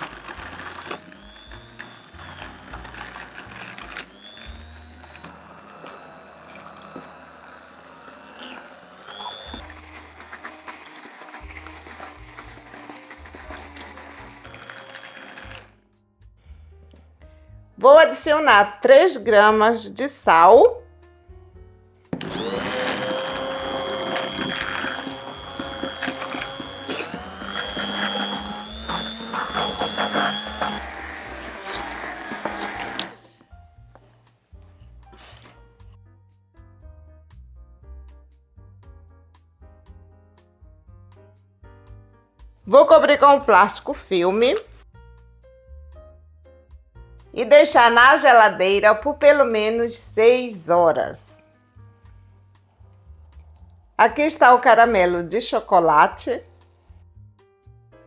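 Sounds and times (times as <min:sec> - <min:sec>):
immersion blender whining: 0:00.0 - 0:15.8, 0:22.2 - 0:33.3.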